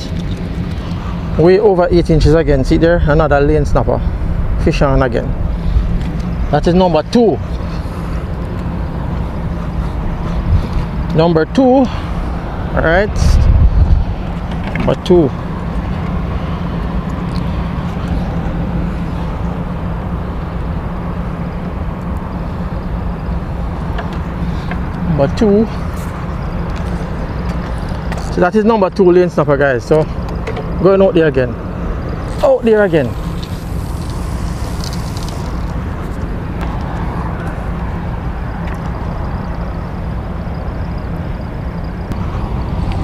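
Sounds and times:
wind noise on microphone: 0.0s - 11.1s, 12.0s - 15.0s.

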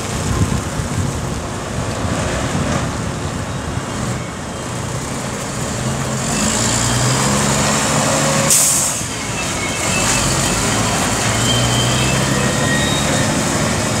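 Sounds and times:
truck diesel engine pulling away: 3.6s - 14.0s
air brake hiss: 8.5s - 9.1s.

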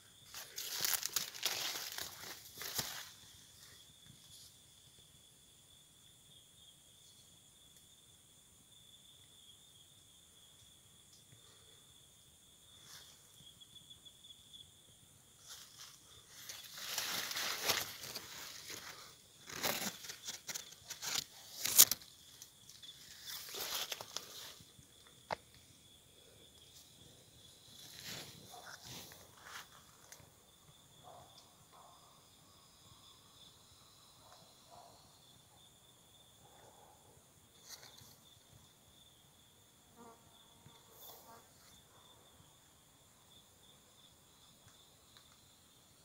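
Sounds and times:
high-pitched insect trill: 0.0s - 46.0s
rustling and scraping: 15.4s - 24.6s.

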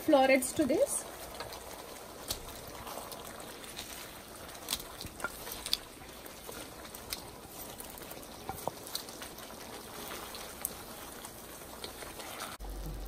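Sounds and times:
gravy bubbling and sizzling: 0.0s - 13.0s.

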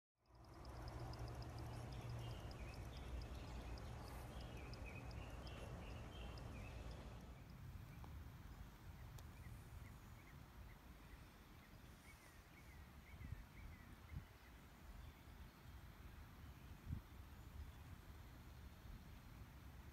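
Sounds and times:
steady low rumble: 0.2s - 7.4s
fast high ticking: 0.2s - 7.5s
birds chirping: 0.2s - 7.6s.

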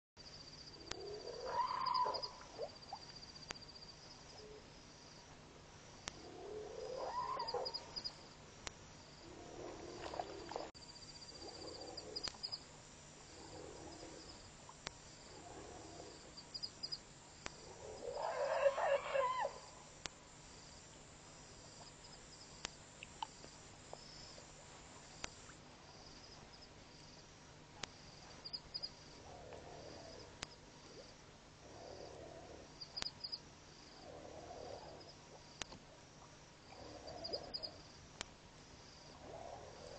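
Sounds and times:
angry elephant calls with growling: 1.0s - 2.4s, 6.4s - 7.8s, 17.7s - 19.7s.

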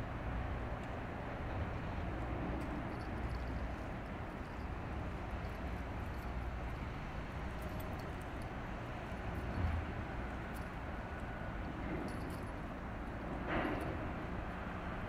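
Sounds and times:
low waterfront rumble: 0.0s - 15.0s.

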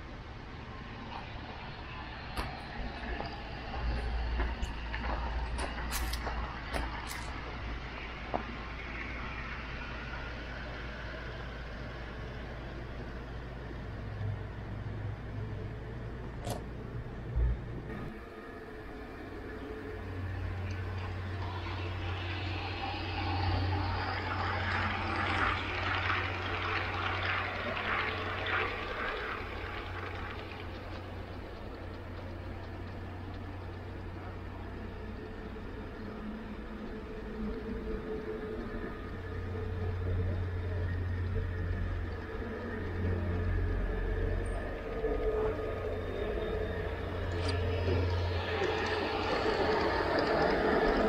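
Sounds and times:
model train humming: 0.0s - 51.0s
rattle of rapid clicks: 24.7s - 36.1s.

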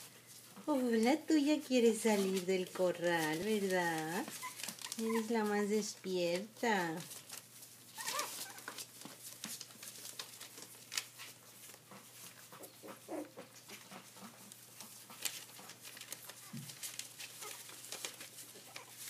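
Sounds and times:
puppy paws scratching on newspaper: 0.0s - 19.0s
puppy squeaks: 4.3s - 5.4s, 7.9s - 8.7s.

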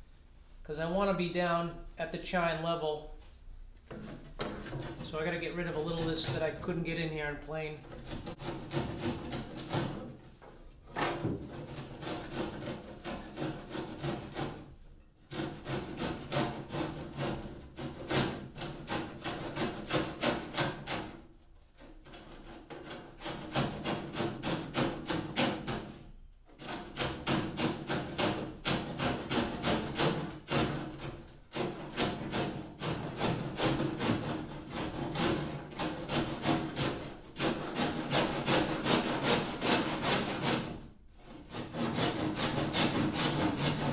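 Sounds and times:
handsaw cutting plywood: 7.9s - 10.3s, 11.0s - 43.9s.

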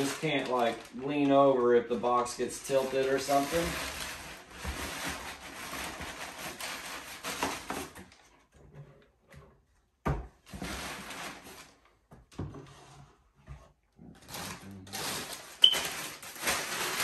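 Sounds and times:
packing paper rustling: 0.0s - 8.3s, 10.5s - 12.0s, 14.2s - 17.0s.

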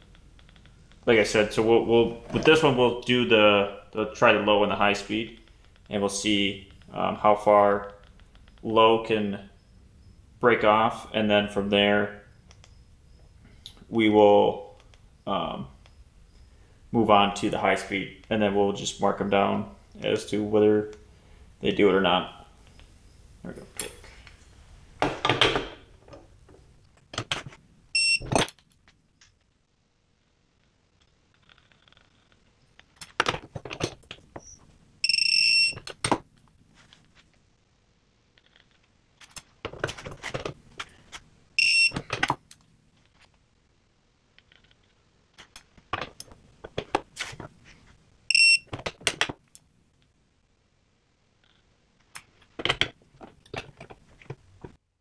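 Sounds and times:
electronic beeps: 27.9s - 28.3s, 34.4s - 35.8s, 41.6s - 42.0s, 48.3s - 48.7s.

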